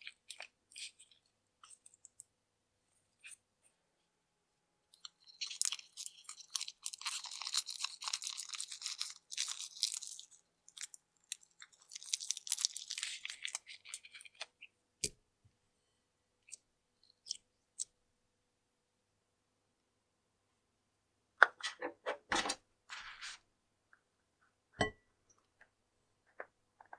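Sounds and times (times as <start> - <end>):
slime crackling and squelching: 5.0 - 14.7.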